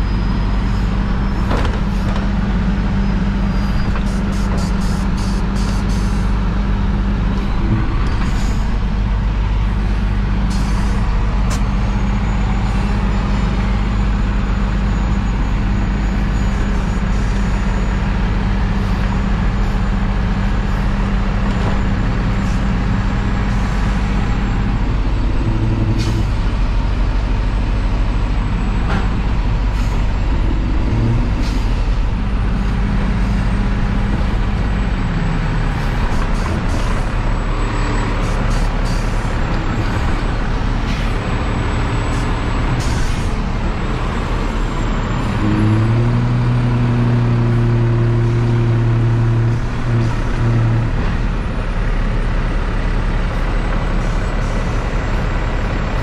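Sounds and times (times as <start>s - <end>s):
diesel engine drone: 0.0s - 56.0s
clanks: 1.2s - 5.8s.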